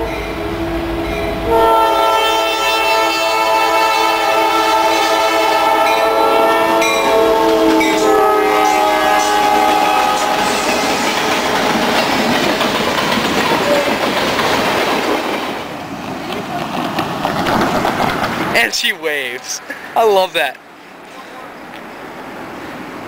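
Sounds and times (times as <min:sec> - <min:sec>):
locomotive air horn: 0:00.0 - 0:11.6
freight cars rolling on rails: 0:00.0 - 0:23.0.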